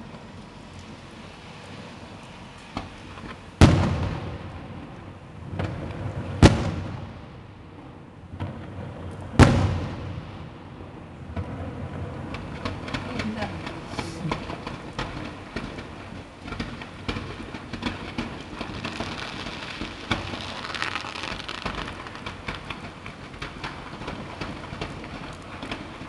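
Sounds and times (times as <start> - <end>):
faint firework pops: 2.6 - 7.3, 12.3 - 26.0
firework shells booming: 2.7 - 26.0
rolling echo: 2.7 - 26.0
small crackling pops: 12.3 - 26.0.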